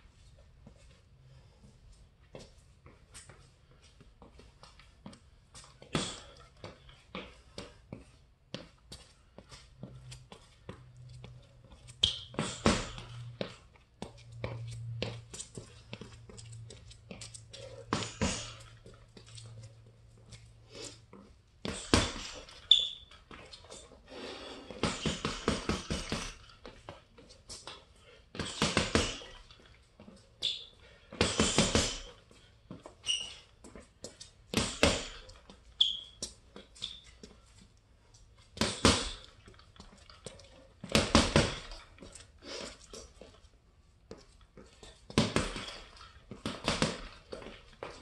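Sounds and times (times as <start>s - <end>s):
gloves punching heavy bag: 12.3s - 13.1s, 17.9s - 18.7s, 21.6s - 22.6s, 24.7s - 26.5s, 28.3s - 29.4s, 31.1s - 32.2s, 34.5s - 35.4s, 38.6s - 39.4s, 40.8s - 41.9s, 45.1s - 48.0s.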